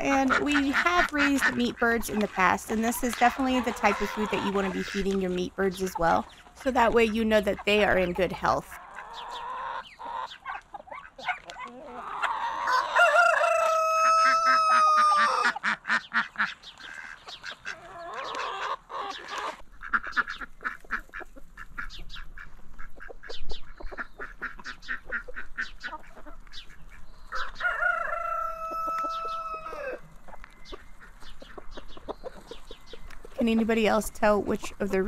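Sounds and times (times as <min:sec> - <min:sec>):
chickens clucking: 0:00.0 - 0:35.0
rooster crowing: 0:11.9 - 0:15.6, 0:27.3 - 0:30.0.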